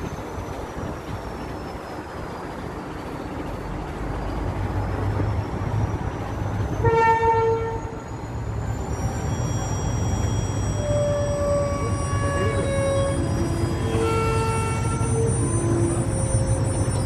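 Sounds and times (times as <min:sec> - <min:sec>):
freight train rumbling: 0:00.0 - 0:17.0
train horn blast: 0:06.8 - 0:08.0, 0:10.8 - 0:17.0.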